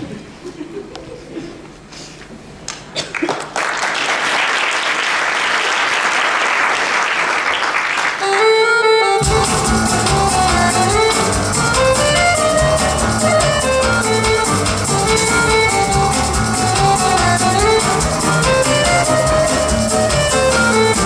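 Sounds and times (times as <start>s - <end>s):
audience applauding: 2.7s - 8.7s
music with bass and beat: 9.2s - 21.0s.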